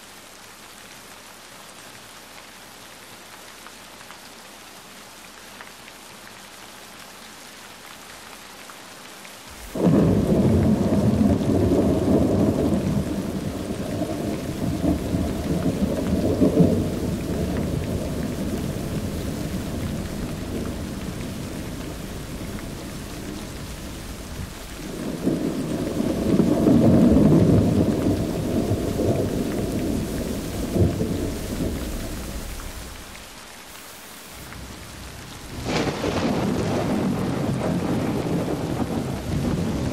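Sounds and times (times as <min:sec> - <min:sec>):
rain hiss: 0:00.0 - 0:39.9
thunder rolling: 0:09.5 - 0:33.2, 0:34.4 - 0:39.9.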